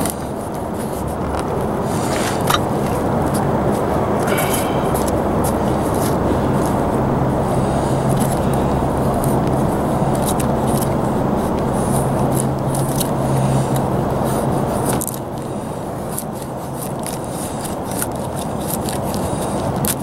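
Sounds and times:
hum: 0.0 - 16.0
loud low rumble: 1.1 - 14.3
knife scraping wood: 1.8 - 3.4.

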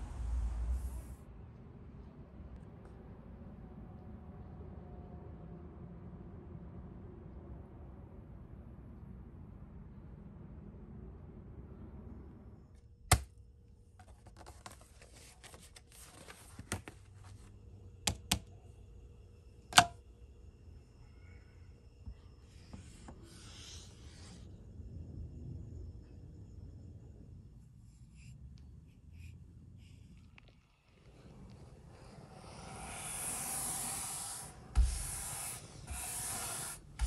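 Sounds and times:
low steady hum: 0.0 - 37.0
glossy paper pages rustling: 14.0 - 17.5
paint brush swishing: 32.5 - 37.0.

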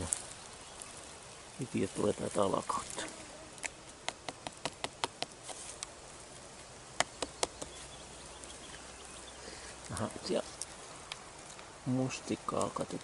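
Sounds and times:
fingers tapping bracket fungus: 3.6 - 5.9, 7.0 - 8.5.

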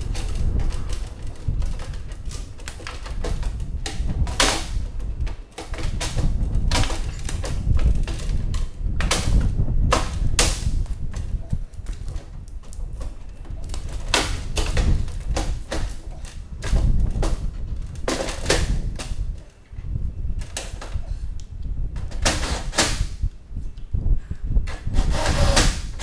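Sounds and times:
hand tools clicking and knocking: 0.0 - 19.6.

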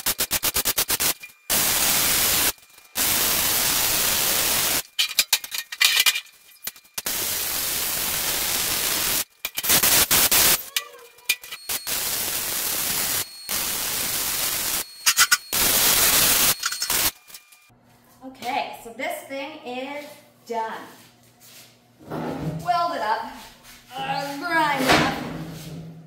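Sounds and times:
welding arc hissing and crackling: 0.0 - 17.4.

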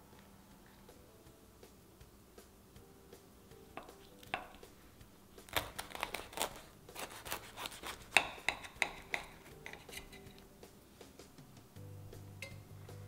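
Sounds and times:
knife cutting crisp crust: 5.4 - 10.4.

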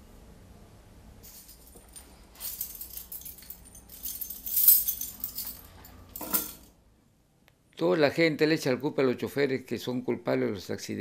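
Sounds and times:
keys jangling on a ring: 1.2 - 6.7.

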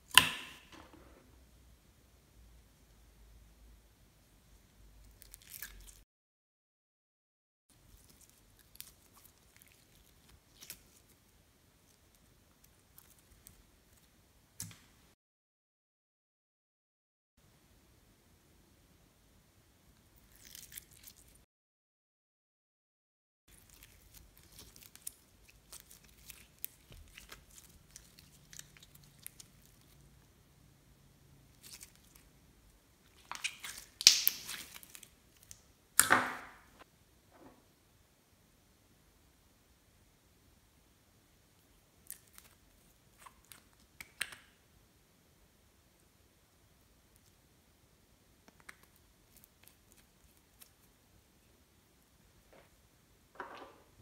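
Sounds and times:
slime squelching: 7.8 - 14.1, 20.2 - 21.4, 23.5 - 30.2, 31.4 - 35.6
slime clicking and crackling: 23.5 - 30.0, 33.1 - 35.6.

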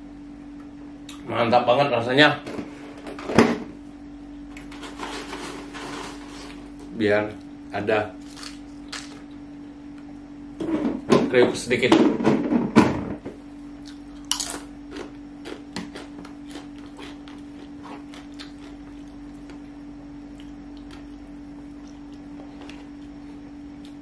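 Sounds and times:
steady low hum: 0.0 - 24.0
chewing crunchy chip: 8.2 - 9.4, 13.8 - 19.7, 20.3 - 24.0.

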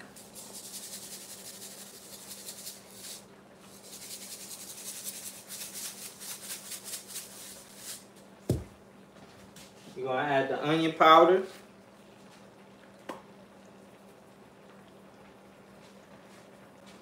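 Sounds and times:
salt shaken into a pan: 0.0 - 8.1
faint steady hum: 0.0 - 17.0
dull thump: 8.5 - 8.8.

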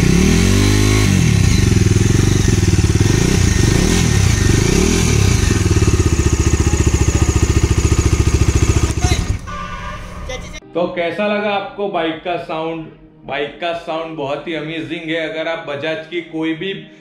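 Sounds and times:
motorcycle engine revving and idling: 0.0 - 10.6.

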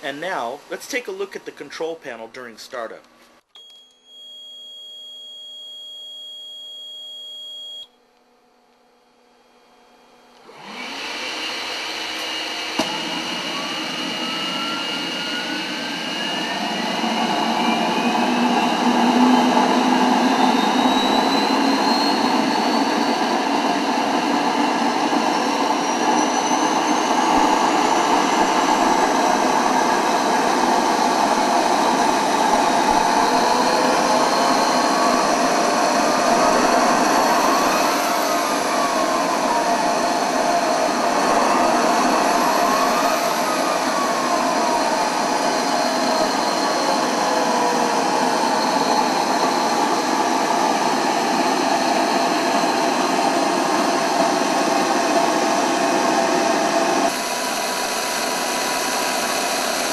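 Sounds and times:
turbine whine rising in pitch: 9.4 - 59.9
steady electronic tone: 14.3 - 47.1
rush of air: 26.0 - 46.3.

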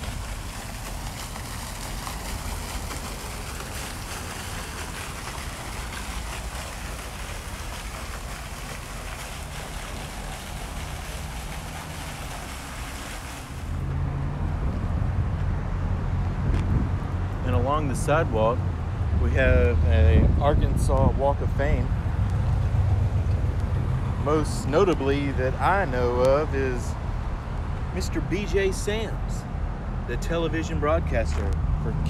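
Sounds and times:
low rumble of outdoor noise: 0.0 - 32.0
wind buffeting microphone: 14.5 - 17.2, 19.5 - 24.5.

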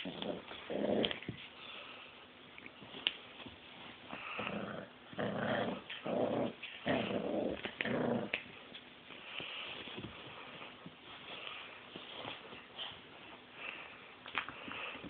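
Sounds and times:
puppy growling: 0.0 - 1.4, 4.1 - 8.6.

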